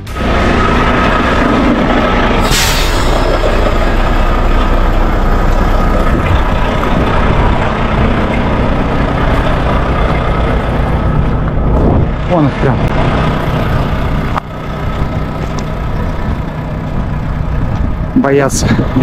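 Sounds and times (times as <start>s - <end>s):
truck engine and road noise: 0.0s - 19.0s
brief rush of noise: 2.3s - 6.6s
wind buffeting microphone: 3.1s - 19.0s.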